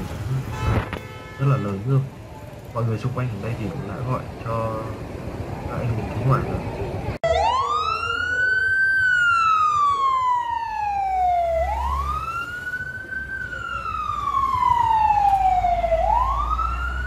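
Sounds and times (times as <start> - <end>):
fire engine siren wailing: 7.2 - 17.0.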